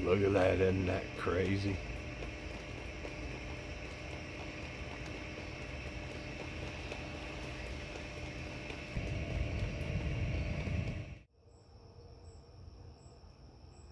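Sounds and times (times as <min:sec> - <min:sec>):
rain and wind hiss: 0:00.0 - 0:11.2
insects chirping: 0:00.0 - 0:13.9
low rumble: 0:01.8 - 0:11.3.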